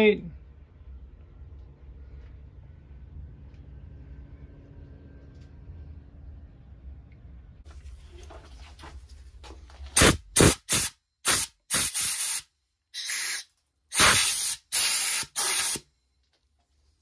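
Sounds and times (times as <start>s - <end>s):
compressed air blasts: 10.0s - 15.8s.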